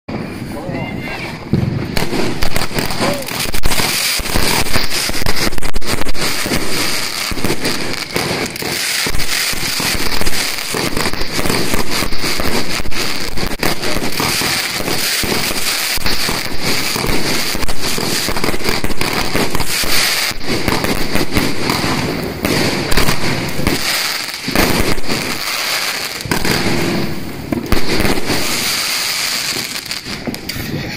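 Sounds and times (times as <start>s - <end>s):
fireworks barrage: 0.1s - 30.9s.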